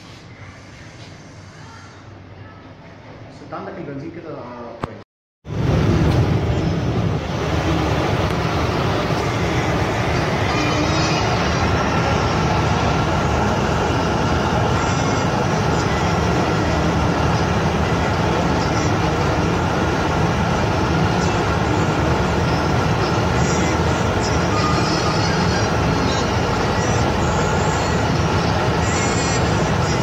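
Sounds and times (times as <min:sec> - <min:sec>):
car cabin road and engine noise: 0:05.5 - 0:30.0.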